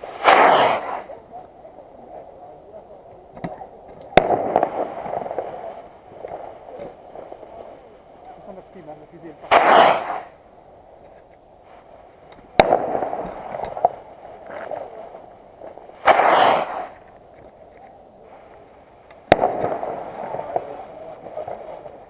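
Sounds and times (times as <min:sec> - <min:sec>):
firework bangs: 0:00.0 - 0:01.2, 0:03.4 - 0:07.7, 0:08.4 - 0:10.5, 0:11.8 - 0:17.4, 0:19.2 - 0:22.0
firework launch whoosh: 0:00.0 - 0:01.2, 0:04.2 - 0:07.0, 0:09.2 - 0:10.4, 0:12.5 - 0:14.8, 0:15.7 - 0:17.1, 0:19.2 - 0:21.8
firework crackle: 0:00.0 - 0:22.0.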